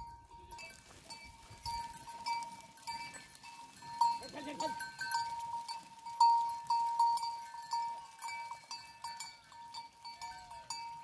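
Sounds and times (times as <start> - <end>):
goat bells clinking: 0.0 - 11.0.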